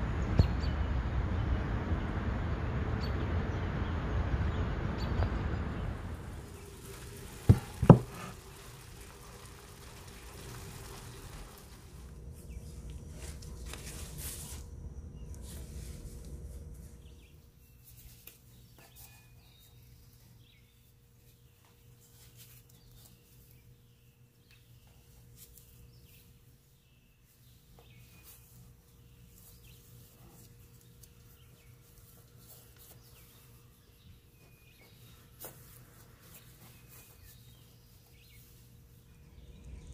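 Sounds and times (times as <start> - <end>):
steady low hum: 0.0 - 17.8, 28.7 - 39.9
faint steady hiss: 5.3 - 20.2
tortillas rustling in skillet: 6.0 - 17.2.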